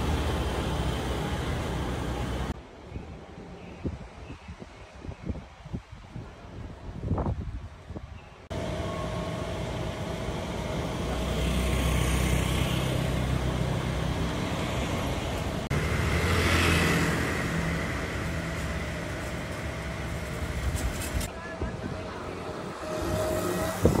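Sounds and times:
vehicle engines passing: 0.0 - 2.6, 8.5 - 24.0
street noise: 0.0 - 24.0.

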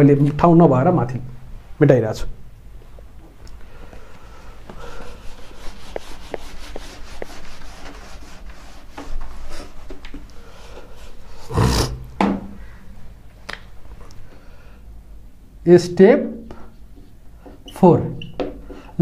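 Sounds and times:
eraser scrubbing whiteboard: 4.8 - 10.2.

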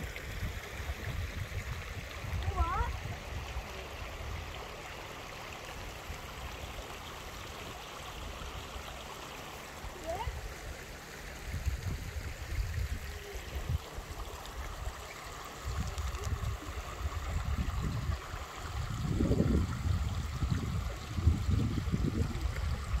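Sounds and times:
creek water babbling over stones: 0.0 - 23.0.

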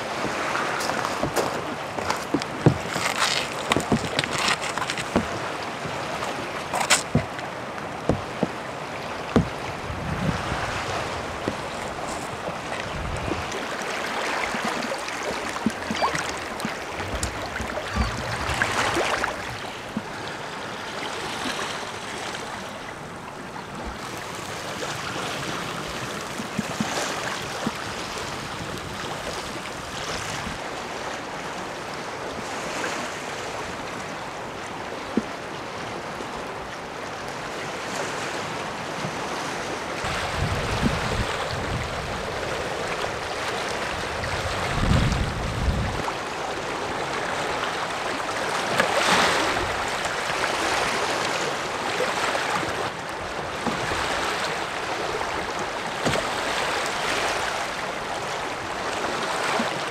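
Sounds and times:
waves washing against rocks: 0.0 - 22.6, 37.6 - 59.9
wind buffeting microphone: 9.3 - 13.6, 15.6 - 20.1, 40.0 - 46.1
wind gusting: 9.4 - 13.6.

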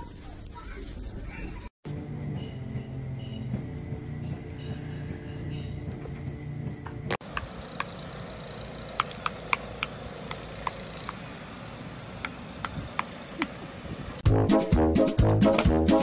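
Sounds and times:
light clinks and ticks: 7.3 - 11.3, 12.2 - 14.1.

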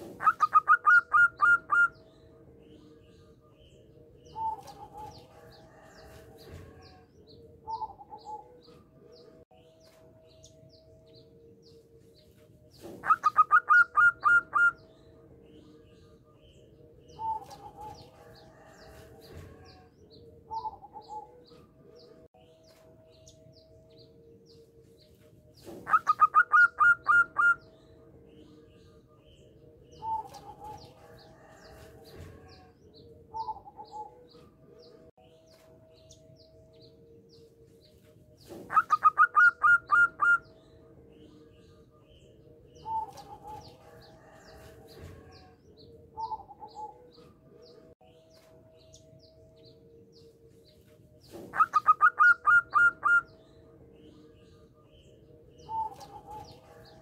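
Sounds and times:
dove cooing: 0.0 - 2.0, 4.2 - 7.0, 7.6 - 8.7, 12.8 - 14.8, 20.5 - 21.6, 25.6 - 27.6, 38.5 - 40.6, 46.2 - 47.2, 51.3 - 53.4.

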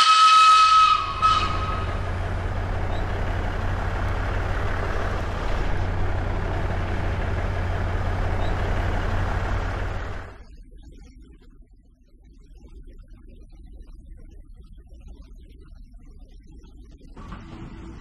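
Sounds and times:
train whistle: 0.0 - 5.0
diesel locomotive engine rumble: 0.0 - 10.5, 17.2 - 18.0.

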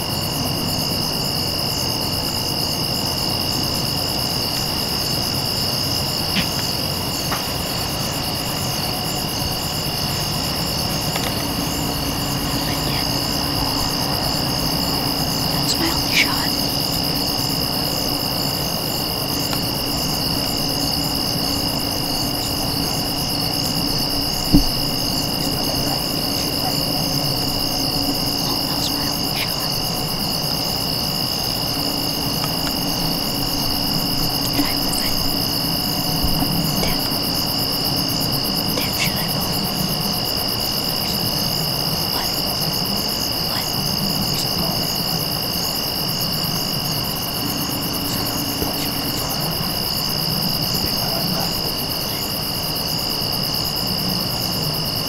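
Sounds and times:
crickets and insects trilling: 0.0 - 55.0.

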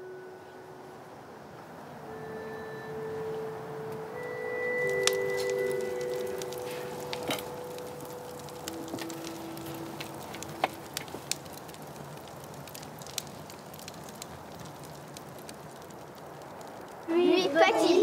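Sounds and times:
soft held musical tones: 0.0 - 13.9
campfire crackling and popping: 3.2 - 18.0.

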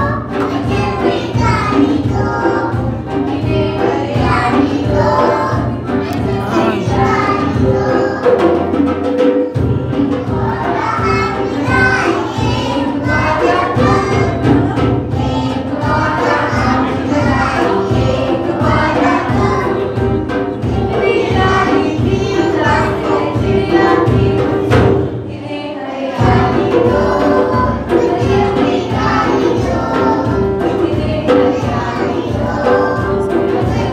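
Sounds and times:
band guitar and drums: 0.0 - 25.2
children singing together: 0.0 - 33.9.

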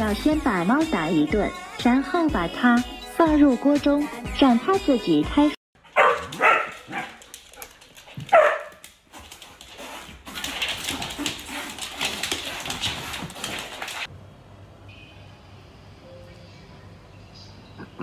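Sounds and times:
dog and cat scuffling: 5.8 - 14.1.

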